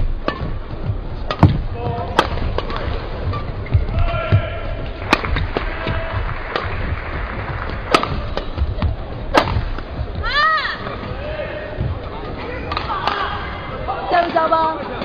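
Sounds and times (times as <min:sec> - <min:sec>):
arena crowd noise with voices: 0:00.0 - 0:15.0
rackets hitting shuttlecock: 0:00.1 - 0:10.1, 0:12.7 - 0:13.3.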